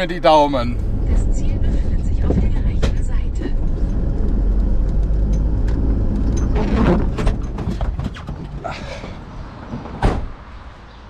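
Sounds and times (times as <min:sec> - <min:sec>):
van engine and road rumble: 0:00.0 - 0:11.0
loud thump: 0:09.8 - 0:10.4.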